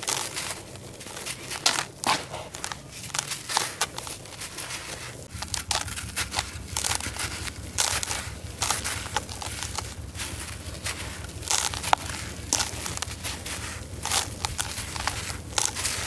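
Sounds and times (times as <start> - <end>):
hands crumbling gritty cement mix: 0.0 - 16.0.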